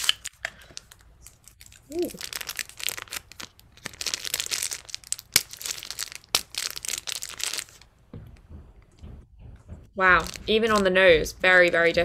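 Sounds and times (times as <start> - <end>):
paper wrapper crinkling: 0.0 - 7.9, 10.2 - 12.0.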